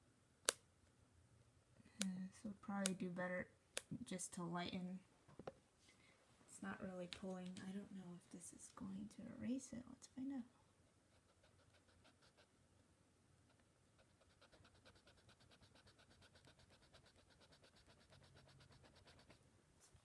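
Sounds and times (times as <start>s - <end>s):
eraser rubbing on paper: 14.1s - 19.4s.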